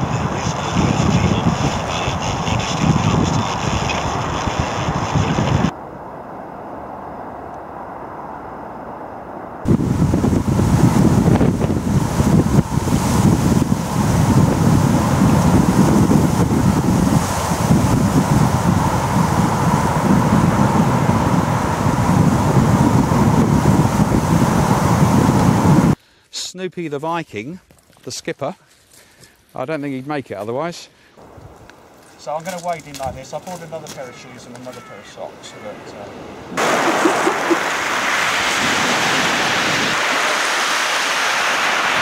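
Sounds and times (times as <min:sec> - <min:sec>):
wind buffeting microphone: 0:00.0 - 0:08.4, 0:09.3 - 0:26.0, 0:36.1 - 0:42.0
sea surf breaking: 0:09.6 - 0:26.0, 0:32.7 - 0:42.0.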